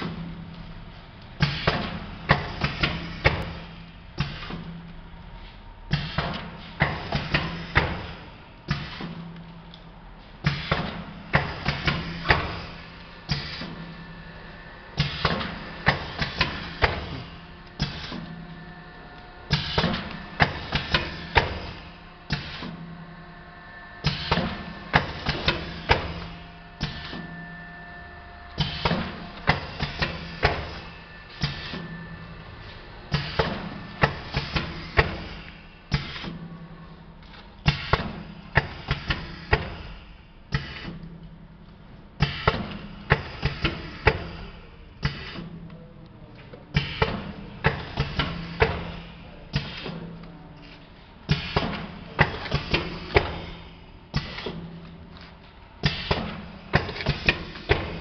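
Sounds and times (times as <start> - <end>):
machine low hum: 0.0 - 58.0
packing machine clacking: 19.5 - 22.8, 24.1 - 27.4, 28.6 - 32.2, 33.1 - 36.5, 46.8 - 50.2, 51.3 - 58.0.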